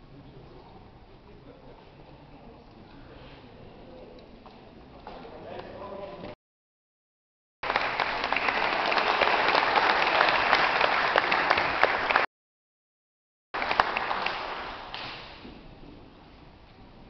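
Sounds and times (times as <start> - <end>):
audience clapping: 7.6 - 12.3, 13.6 - 15.4.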